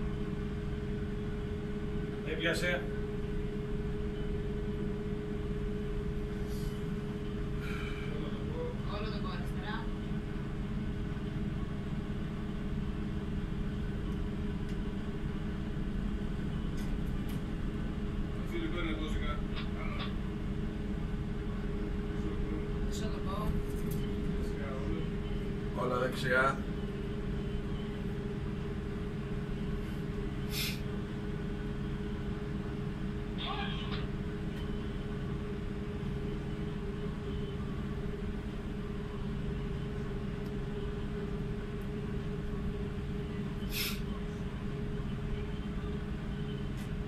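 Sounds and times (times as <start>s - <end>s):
ship engines humming: 0.0s - 47.0s
short hiss: 43.7s - 44.0s.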